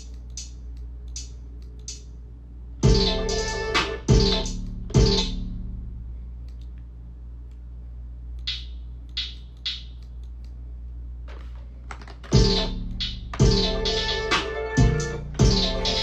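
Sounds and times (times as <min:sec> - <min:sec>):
trap beat: 0:00.0 - 0:05.6, 0:08.4 - 0:10.1, 0:12.3 - 0:16.0.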